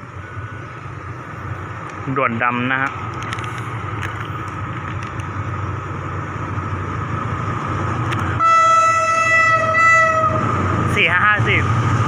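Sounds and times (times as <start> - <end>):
diesel locomotive rumble: 0.0 - 12.0
locomotive horn blast: 8.4 - 10.5.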